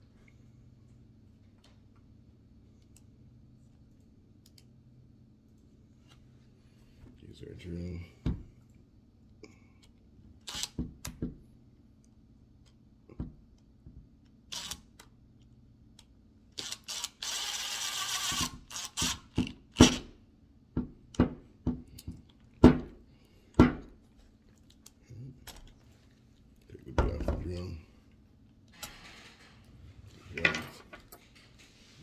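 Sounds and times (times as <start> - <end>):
drill motor running: 14.5 - 14.8, 16.6 - 20.0.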